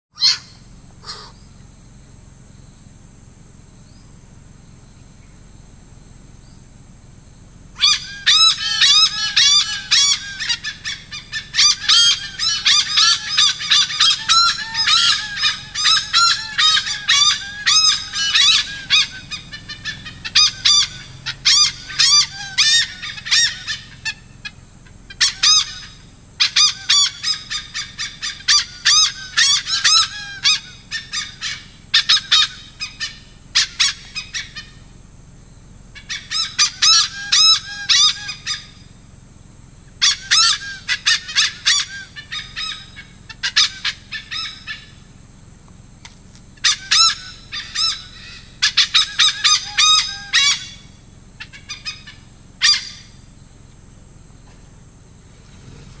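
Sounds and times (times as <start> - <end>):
hornbill harsh cackling calls: 0.2 - 1.5, 7.7 - 34.9, 35.9 - 39.0, 39.9 - 45.1, 46.6 - 53.5, 55.2 - 56.0.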